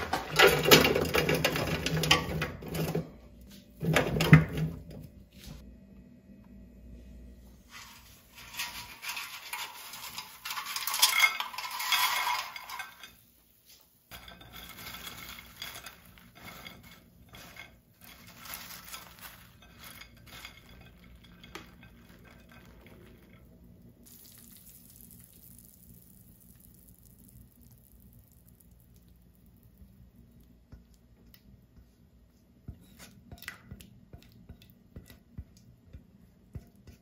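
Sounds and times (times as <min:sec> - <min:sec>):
fries clattering onto ceramic plate: 0:08.4 - 0:13.2, 0:14.1 - 0:23.5
clicks and rustles of fries: 0:14.1 - 0:23.5.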